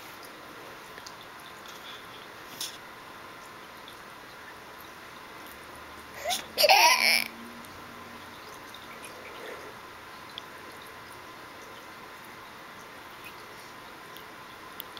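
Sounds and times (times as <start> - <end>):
baby squealing: 6.2 - 7.3.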